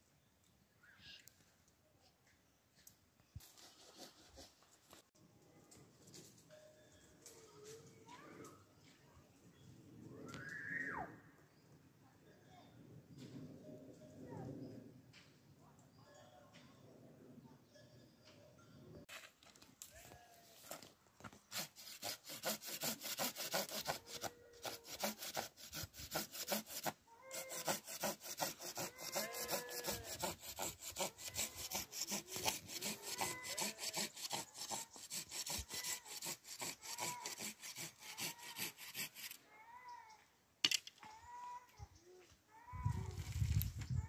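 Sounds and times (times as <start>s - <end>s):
hand saw cutting wood: 21.5s - 39.4s.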